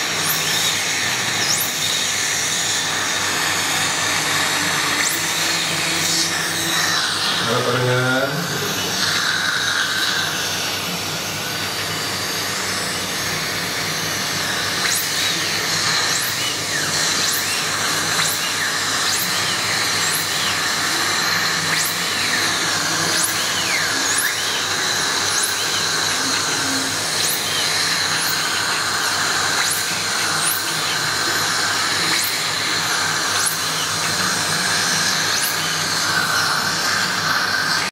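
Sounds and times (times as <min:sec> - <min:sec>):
dental drill whine: 0:00.0 - 0:37.9
suction hissing: 0:00.0 - 0:37.9.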